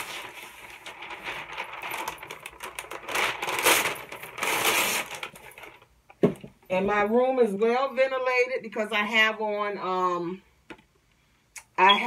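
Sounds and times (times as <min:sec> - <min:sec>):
wax paper crinkling: 0:00.0 - 0:05.9.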